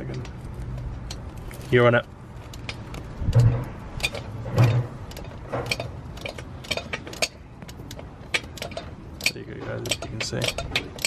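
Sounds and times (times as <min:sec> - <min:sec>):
low thuds: 0:02.4 - 0:08.4
socket ratchet clicking: 0:05.1 - 0:11.0.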